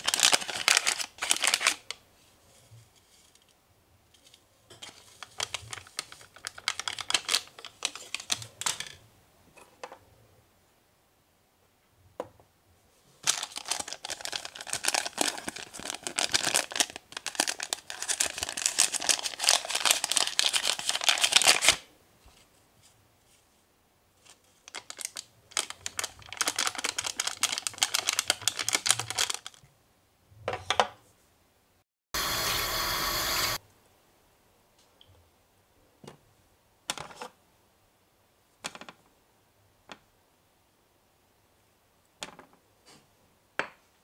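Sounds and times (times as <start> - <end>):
packet crinkling and tearing: 0.0 - 2.0, 4.8 - 8.9, 13.2 - 21.8, 24.6 - 29.6.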